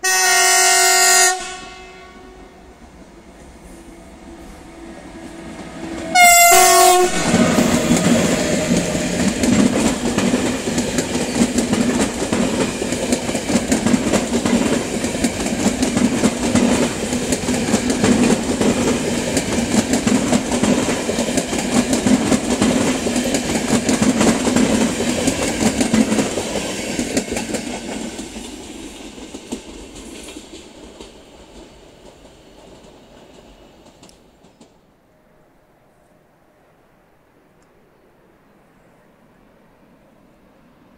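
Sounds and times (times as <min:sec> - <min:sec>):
train horn: 0:00.0 - 0:02.8, 0:03.6 - 0:09.4
train coaches clattering over rails: 0:03.3 - 0:34.8.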